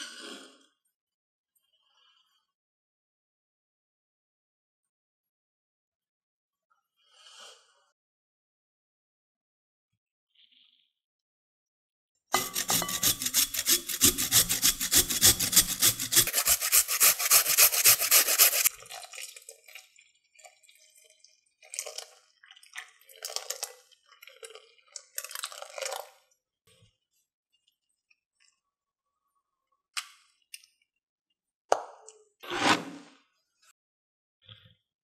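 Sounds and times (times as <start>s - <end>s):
potato rasping on metal grater: 12.4s - 18.7s
short scraping sounds: 12.4s - 18.7s, 32.4s - 33.2s.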